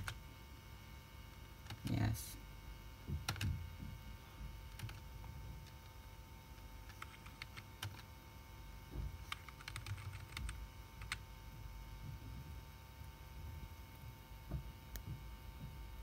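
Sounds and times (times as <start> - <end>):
faint steady hum: 0.0 - 16.0
keyboard keys clicking: 1.3 - 1.9, 3.2 - 3.6, 4.7 - 5.0, 6.6 - 8.1, 9.3 - 11.2.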